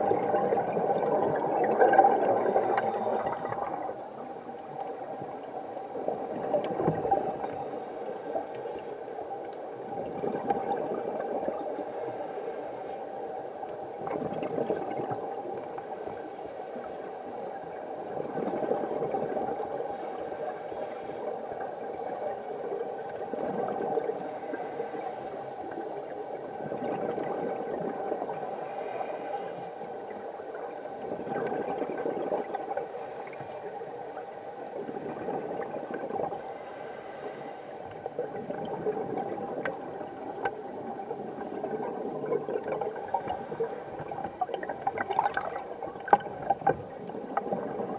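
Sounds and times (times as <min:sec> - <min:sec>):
gurgling exhaled bubbles: 0:00.0 - 0:04.3, 0:06.0 - 0:07.6, 0:09.9 - 0:11.8, 0:14.0 - 0:15.6, 0:17.7 - 0:19.8, 0:21.8 - 0:24.2, 0:26.4 - 0:28.4, 0:30.8 - 0:32.8, 0:34.7 - 0:36.3, 0:38.1 - 0:47.9
regulator hiss: 0:11.8 - 0:13.2, 0:19.9 - 0:21.8, 0:28.4 - 0:29.8, 0:36.2 - 0:38.0, 0:42.9 - 0:45.1.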